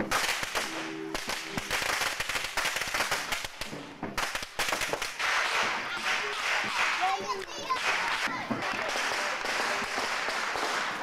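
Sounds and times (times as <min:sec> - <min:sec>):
firecrackers popping: 0:00.0 - 0:11.0.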